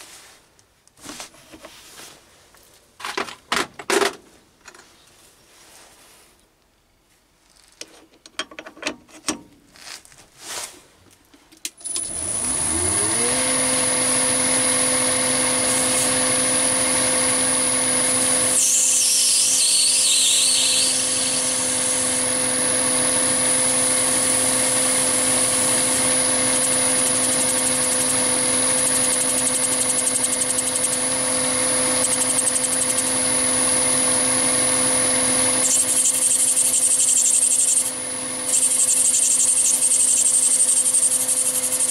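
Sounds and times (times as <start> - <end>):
tool holder clicks and knocks: 8.2 - 9.5
lathe motor whine: 11.8 - 41.9
lathe tool cutting brass: 12.0 - 41.9
squeal from cutting: 18.5 - 22.0, 35.6 - 37.9, 38.5 - 41.9.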